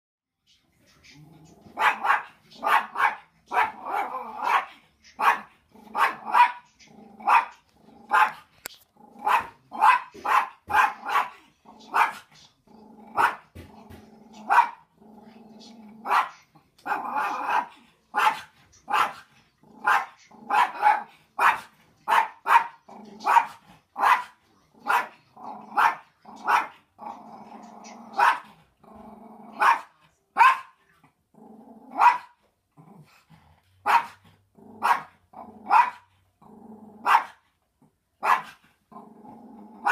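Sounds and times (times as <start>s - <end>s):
dog growling: 1.1s - 2.7s, 5.7s - 9.8s, 11.0s - 17.8s, 22.9s - 24.0s, 24.7s - 29.8s, 31.3s - 32.0s, 36.4s - 37.1s, 38.9s - 39.9s
small dog barking: 1.7s - 8.5s, 9.2s - 12.3s, 13.2s - 13.4s, 14.4s - 14.8s, 16.0s - 26.8s, 28.1s - 28.5s, 29.5s - 30.8s, 31.9s - 32.4s, 33.8s - 34.2s, 34.8s - 36.1s, 37.0s - 37.4s, 38.2s - 38.6s.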